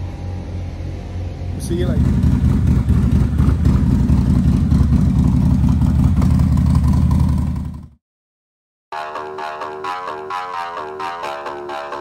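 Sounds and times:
motorcycle engine idling: 0.0s - 8.0s.

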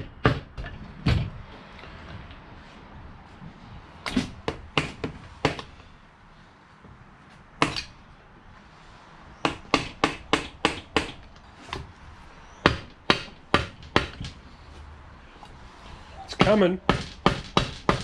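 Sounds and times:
mallet hammering on metal: 0.0s - 0.7s, 9.4s - 11.2s, 12.6s - 14.3s, 16.4s - 18.0s.

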